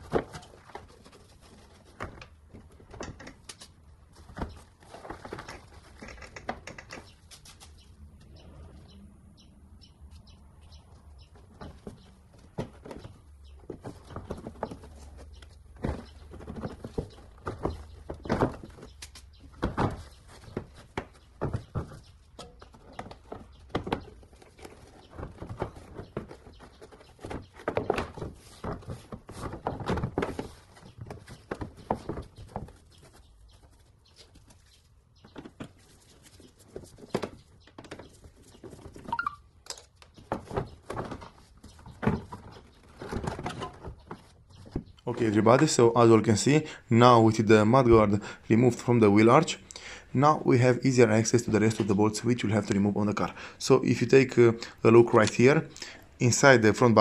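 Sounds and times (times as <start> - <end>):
plastic knocks and scrapes: 10.7 - 45.7
flexing plastic rustling: 11.3 - 45.7
short squeak: 39.1 - 39.4.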